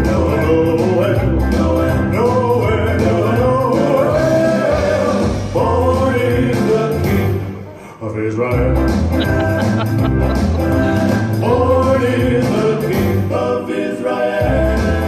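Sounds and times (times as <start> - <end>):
voices singing over a band: 0.0 - 7.5, 10.6 - 15.0
steady bass beat: 8.8 - 12.4.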